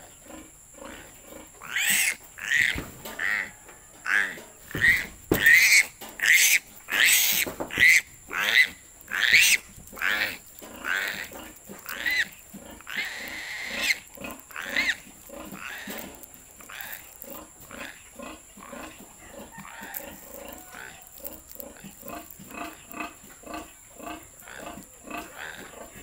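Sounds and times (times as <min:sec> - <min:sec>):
piglet squealing: 0:01.6 - 0:03.5, 0:04.1 - 0:12.3, 0:12.9 - 0:15.0.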